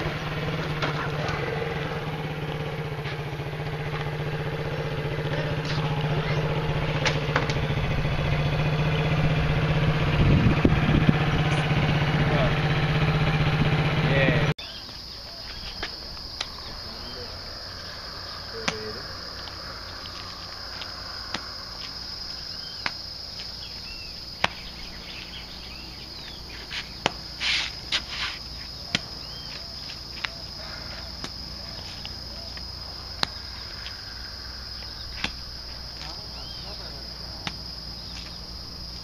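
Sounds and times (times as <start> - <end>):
high-pitched insect drone: 0.0 - 39.0
bird chirps: 4.7 - 6.8, 14.6 - 20.5, 22.2 - 27.2, 28.4 - 37.0
clay slapped on concrete: 37.4 - 38.3.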